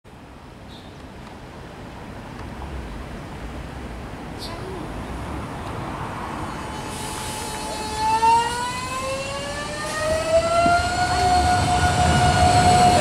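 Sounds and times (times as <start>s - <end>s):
electric train motors whining: 6.5s - 13.0s.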